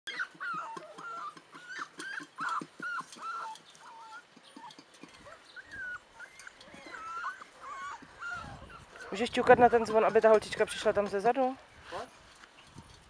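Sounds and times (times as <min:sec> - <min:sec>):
puppies whimpering: 0:00.1 - 0:10.4.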